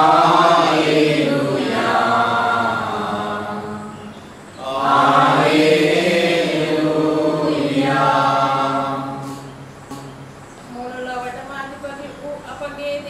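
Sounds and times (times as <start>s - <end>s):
voices singing a chant: 0.0s - 10.4s.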